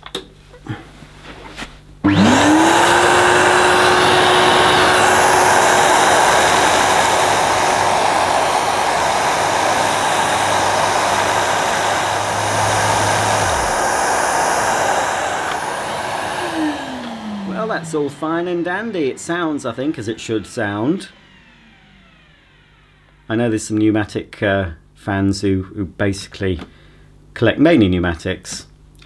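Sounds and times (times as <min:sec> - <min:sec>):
vacuum cleaner running: 0:02.0 - 0:23.4
low hum: 0:02.1 - 0:22.4.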